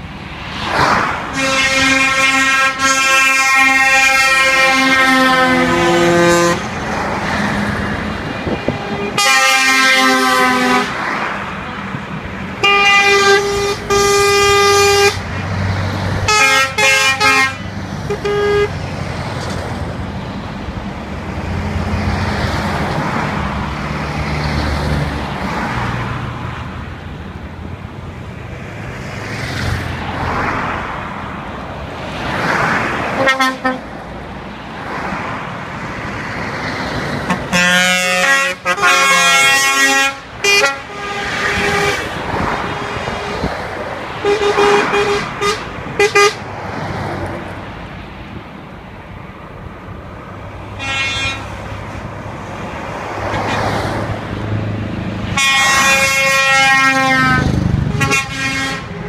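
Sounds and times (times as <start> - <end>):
truck engines and tyres rumbling: 0.0 - 59.0
truck horn blasts: 1.3 - 6.8, 8.4 - 11.1, 12.6 - 15.3, 16.2 - 18.8, 33.2 - 33.9, 37.3 - 43.5, 44.2 - 46.4, 50.7 - 51.7, 55.3 - 59.0.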